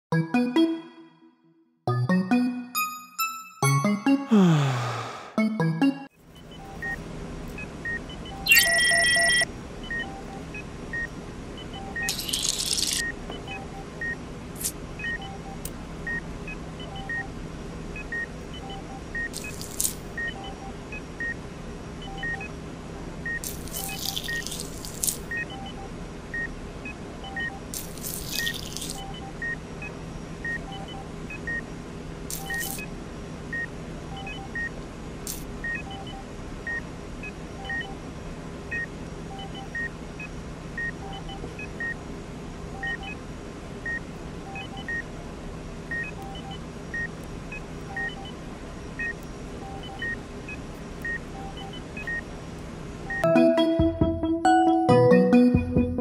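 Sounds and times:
two-pitch electronic beeping: 0:08.3 - 0:10.1.

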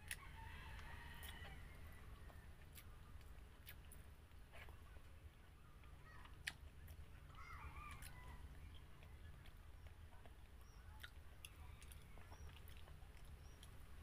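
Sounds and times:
low steady hum: 0:00.0 - 0:14.0
chewing clicks: 0:02.3 - 0:05.1, 0:05.8 - 0:07.1, 0:08.9 - 0:13.8.

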